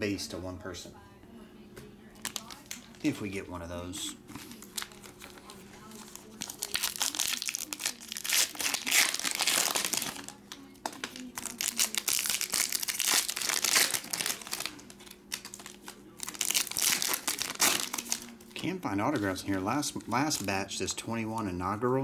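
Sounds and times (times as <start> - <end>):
foil wrappers tearing and crinkling: 2.2 - 3.2, 4.3 - 20.6.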